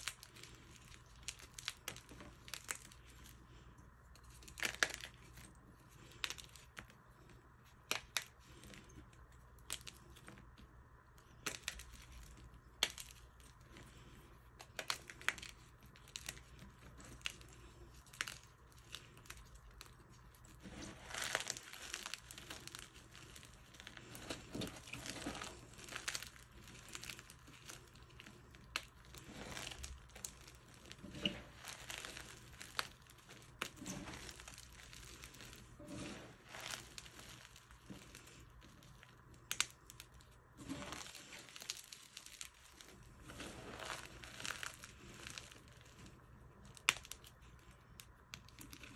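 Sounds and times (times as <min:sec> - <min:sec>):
chalk chunks crunching by hand: 0:11.3 - 0:47.7.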